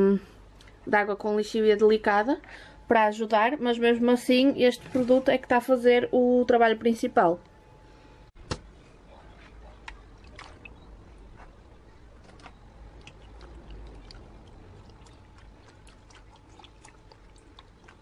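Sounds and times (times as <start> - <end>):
water dripping and splashing: 9.8 - 10.9, 12.9 - 18.0.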